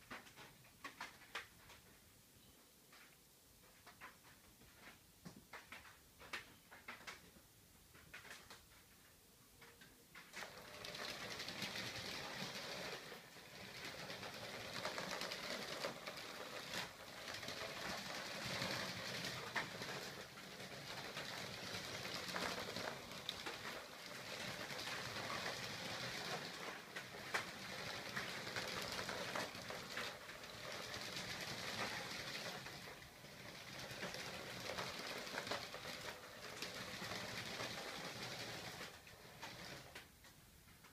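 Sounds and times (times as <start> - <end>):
wheels rattling over concrete: 10.2 - 40.1.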